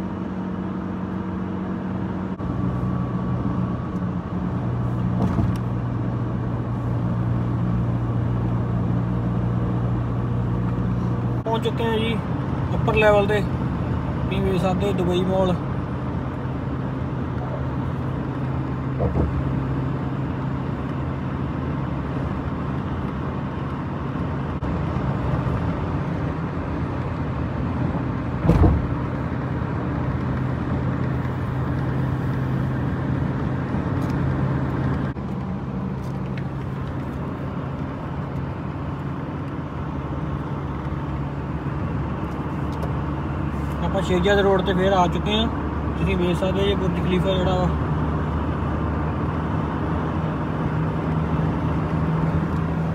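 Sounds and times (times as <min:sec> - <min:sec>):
car road and engine noise: 0:00.0 - 0:52.9
brief knock: 0:28.4 - 0:28.8.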